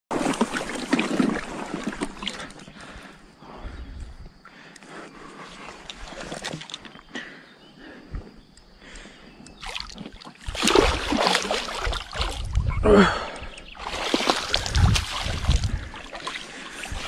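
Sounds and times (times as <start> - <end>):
fish thrashing and splashing: 0.1 - 2.7, 9.6 - 12.7, 13.8 - 17.0.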